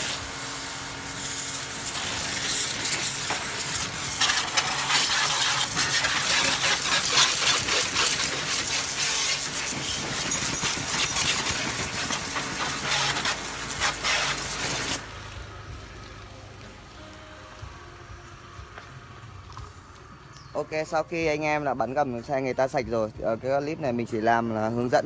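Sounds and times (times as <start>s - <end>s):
pressure washer spraying concrete: 0.0s - 17.2s.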